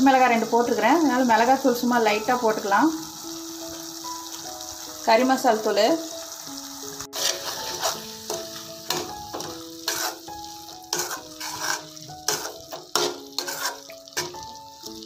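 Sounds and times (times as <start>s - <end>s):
gravy sizzling in oil: 0.0s - 15.0s
metal spoon scraping a pan: 7.1s - 14.5s.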